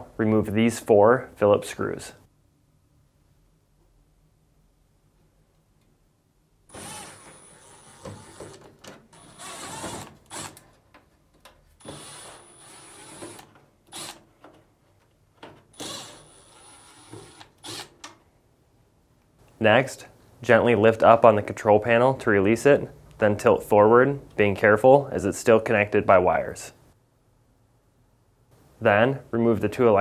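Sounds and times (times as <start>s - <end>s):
cordless drill whining: 6.7s - 10.6s, 11.8s - 14.2s, 15.8s - 17.9s
screws clicking: 6.7s - 10.7s, 11.8s - 14.3s, 15.8s - 18.2s.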